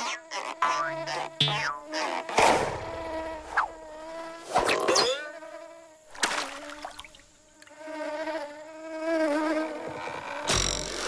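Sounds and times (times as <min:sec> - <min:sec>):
insect wings buzzing: 0:00.0 - 0:11.0.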